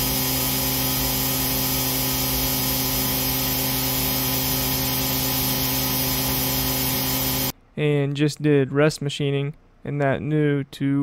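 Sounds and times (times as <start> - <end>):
coolant hiss: 0.0 - 7.5
milling machine whine: 0.0 - 7.5.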